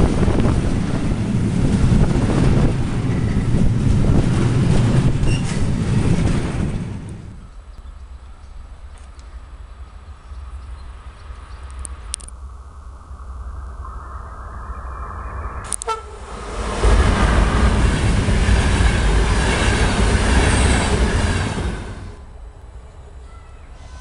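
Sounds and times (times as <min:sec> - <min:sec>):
train wheels rushing on rail: 0:00.0 - 0:12.2, 0:15.6 - 0:24.0
train horn blast: 0:15.7 - 0:17.6.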